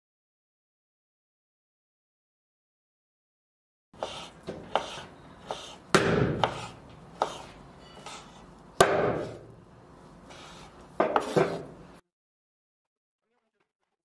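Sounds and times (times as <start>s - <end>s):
heavy knife chops: 4.0s - 9.5s.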